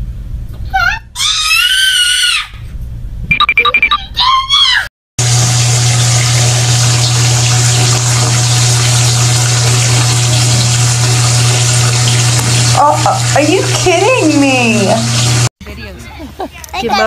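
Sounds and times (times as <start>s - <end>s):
tap water running into bathtub: 5.2s - 15.5s.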